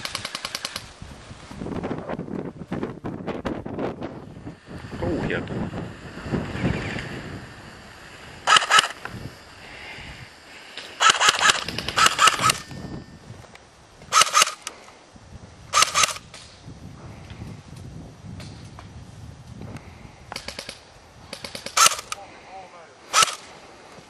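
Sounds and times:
airsoft rifle bursts: 0.0 - 0.9, 8.4 - 9.1, 10.8 - 12.8, 14.1 - 14.8, 15.7 - 16.4, 20.3 - 22.2, 23.1 - 23.6.

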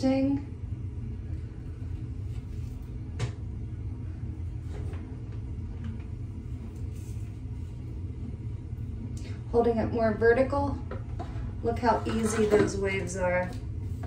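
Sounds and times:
low room hum: 0.0 - 14.0.

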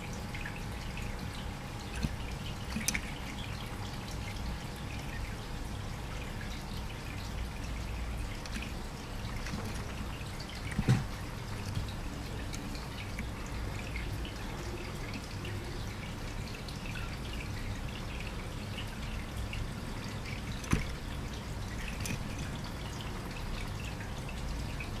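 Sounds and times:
faint clicks and ticks: 7.2 - 18.3.

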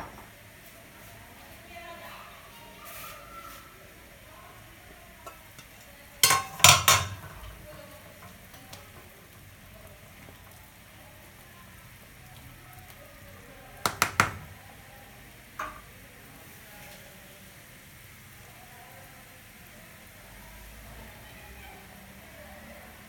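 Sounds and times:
stirring in simmering water: 0.5 - 17.1
metal pot lid clanking: 5.3 - 7.6.

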